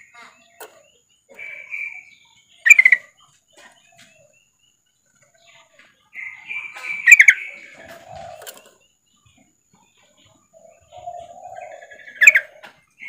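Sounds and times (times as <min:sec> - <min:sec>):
bulbul chattering call: 0:00.0 - 0:03.9, 0:06.2 - 0:08.8, 0:10.6 - 0:12.7.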